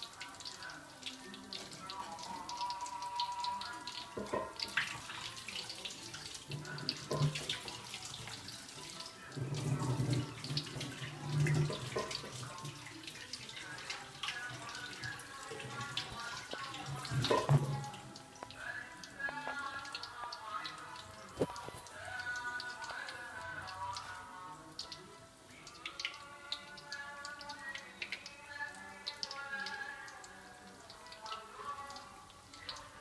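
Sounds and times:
oil sizzling: 0:00.0 - 0:25.6
oil crackling and popping: 0:00.0 - 0:33.0.

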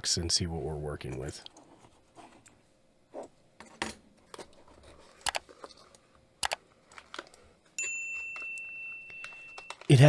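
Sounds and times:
bell-like notification chime: 0:07.8 - 0:09.9.

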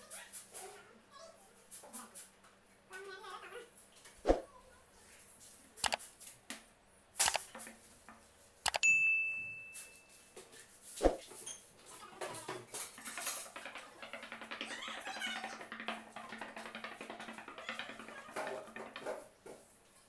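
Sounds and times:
bell ding: 0:08.8 - 0:10.2.

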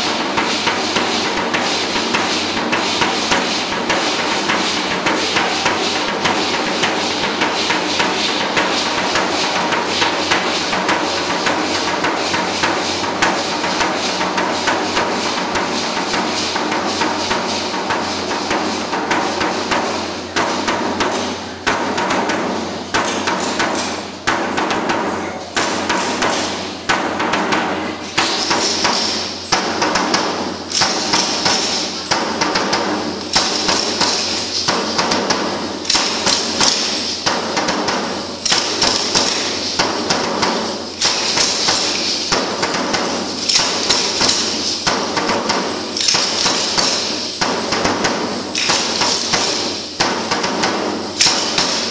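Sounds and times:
steady drum beat: 0:00.0 - 0:51.9.

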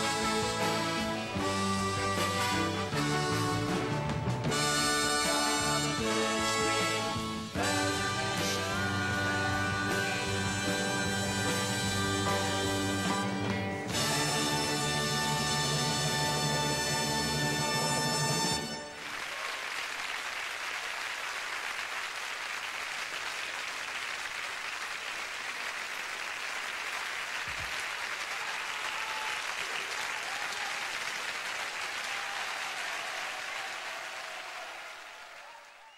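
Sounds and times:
audience applauding: 0:13.9 - 0:35.9.

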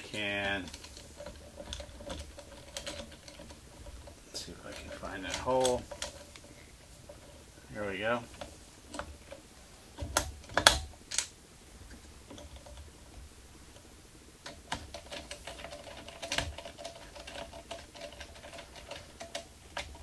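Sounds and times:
metal screw clicks and ticks: 0:13.8 - 0:20.0.

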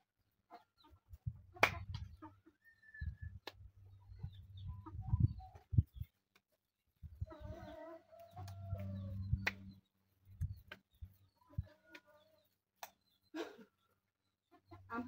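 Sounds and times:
chickens calling: 0:00.5 - 0:06.2, 0:07.1 - 0:12.5.

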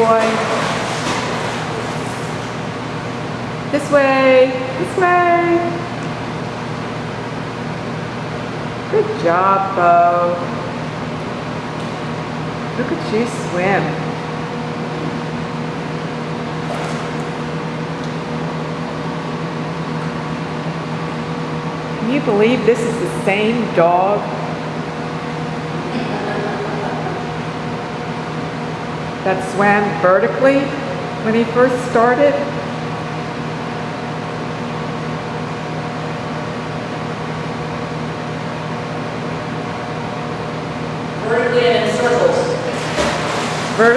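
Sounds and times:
faint water splashes: 0:00.0 - 0:02.6, 0:42.5 - 0:43.9
machine hum and hiss: 0:00.0 - 0:43.9.

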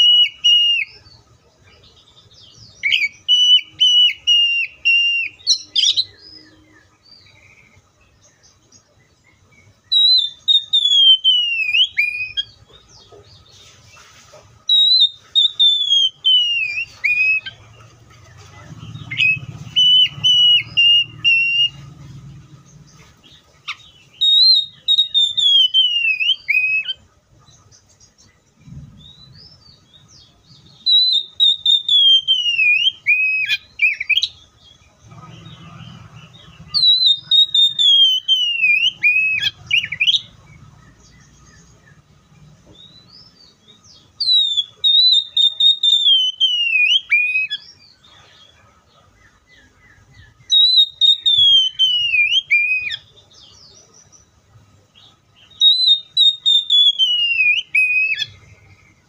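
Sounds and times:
bird singing whistled phrases: 0:00.0 - 0:01.0, 0:02.4 - 0:07.5, 0:09.8 - 0:12.6, 0:14.7 - 0:17.6, 0:18.8 - 0:21.9, 0:23.7 - 0:27.0, 0:28.9 - 0:34.4, 0:36.3 - 0:40.4, 0:42.8 - 0:47.8, 0:50.2 - 0:53.7, 0:55.4 - 0:58.6.

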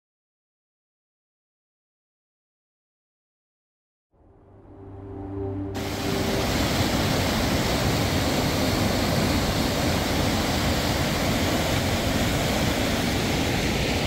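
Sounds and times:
loud steady rushing noise: 0:04.9 - 0:14.0.

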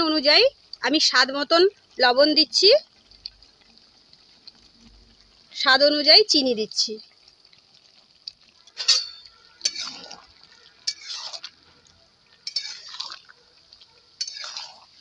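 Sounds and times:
spatula scraping wok: 0:08.7 - 0:15.0
spatula clinking against pan: 0:08.8 - 0:10.0, 0:10.8 - 0:11.3, 0:12.4 - 0:13.0, 0:14.2 - 0:14.8.

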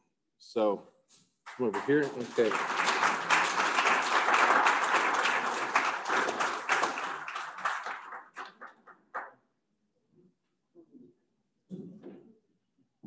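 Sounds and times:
audience applauding: 0:01.5 - 0:09.4.

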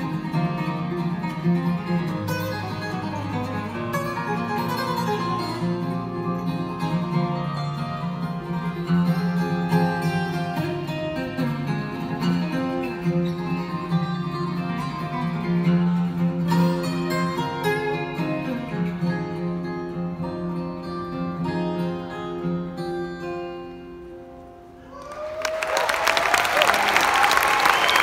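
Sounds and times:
acoustic guitar duet: 0:00.0 - 0:24.9
audience applause: 0:24.9 - 0:28.0.

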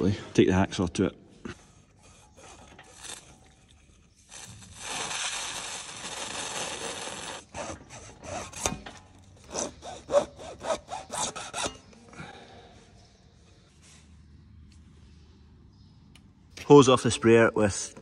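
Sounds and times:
hacksaw cutting hose: 0:02.0 - 0:12.0.

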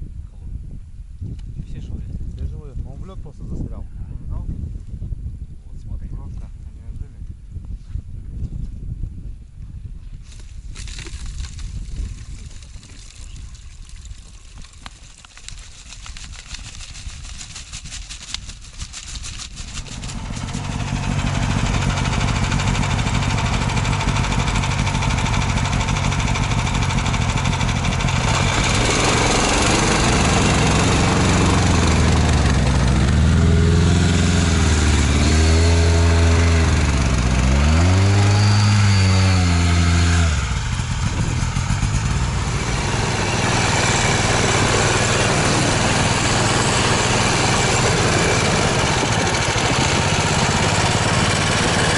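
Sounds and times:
snowmobile engine running: 0:15.6 - 0:51.9.

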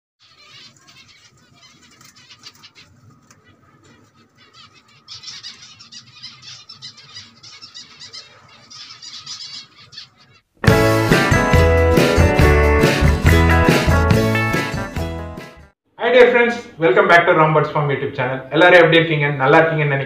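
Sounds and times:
finches chirping: 0:00.2 - 0:10.5.

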